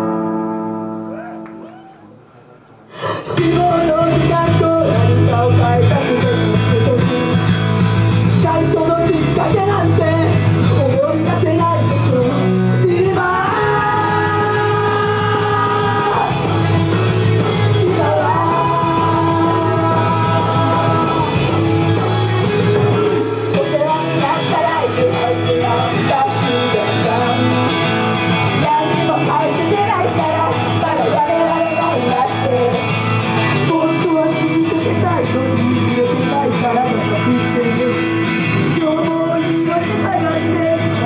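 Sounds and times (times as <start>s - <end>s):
rock-style band music: 3.3s - 41.0s
girls singing: 8.4s - 27.9s, 28.5s - 32.9s.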